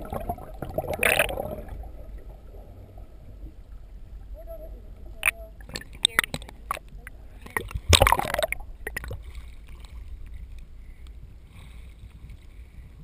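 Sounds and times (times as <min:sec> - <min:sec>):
water splash and gurgle: 0:00.0 - 0:03.6, 0:05.2 - 0:10.7
rush of water and air: 0:00.0 - 0:13.0
underwater clicks and knocks: 0:05.2 - 0:11.2.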